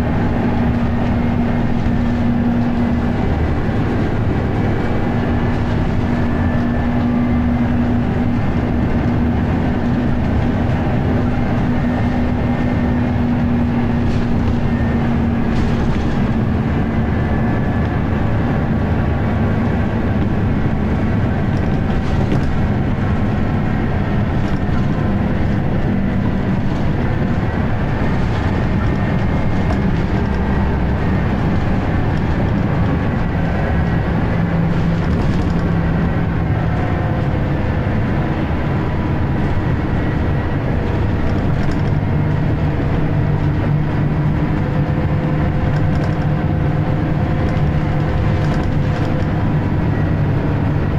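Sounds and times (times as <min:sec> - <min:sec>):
bus engine running: 0:00.0 - 0:50.9.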